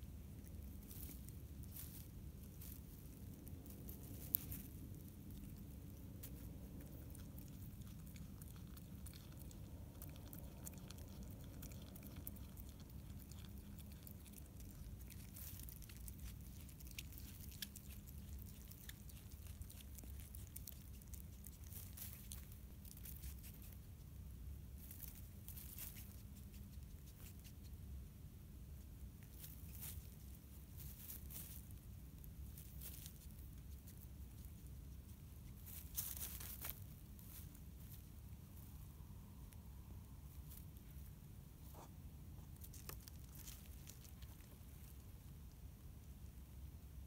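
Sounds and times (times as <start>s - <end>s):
low steady hum: 0.0s - 47.0s
animal chewing wet clicks: 5.1s - 22.4s.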